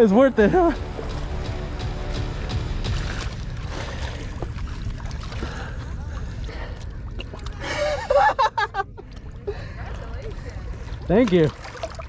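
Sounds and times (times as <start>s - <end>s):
wind rumble: 0.0s - 7.6s
water lapping at rocks: 2.5s - 12.0s.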